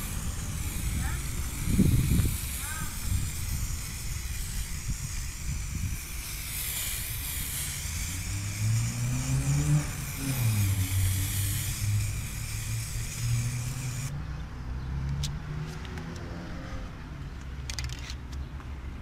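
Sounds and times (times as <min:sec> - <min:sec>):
spray paint can hissing: 0:00.0 - 0:14.1
passing vehicle engine: 0:06.7 - 0:17.4.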